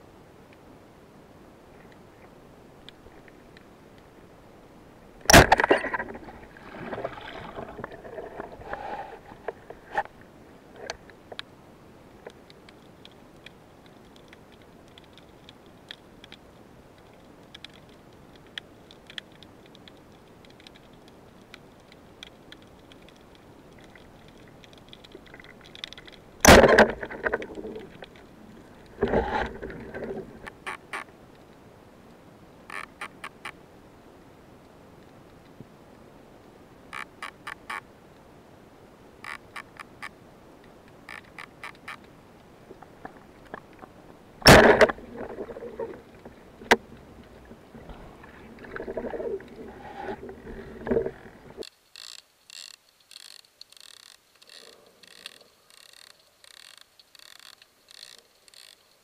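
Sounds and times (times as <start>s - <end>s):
sharp underwater knocks: 5.3s - 6.2s, 26.4s - 27.5s, 44.4s - 45.7s
faint clicks: 9.4s - 11.5s, 12.2s - 33.6s, 39.2s - 59.0s.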